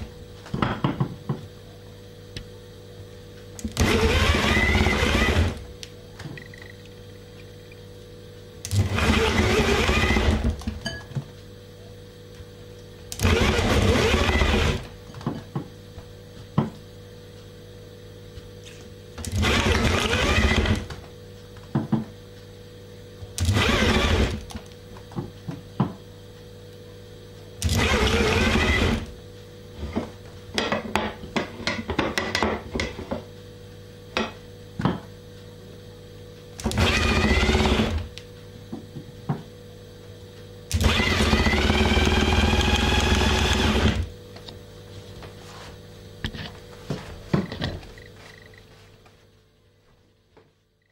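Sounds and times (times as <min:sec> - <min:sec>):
electric drill running: 0:03.6 - 0:05.6, 0:08.7 - 0:10.6, 0:13.2 - 0:14.9, 0:19.3 - 0:20.9, 0:23.4 - 0:24.5, 0:27.6 - 0:29.1, 0:36.6 - 0:38.1, 0:40.7 - 0:44.2.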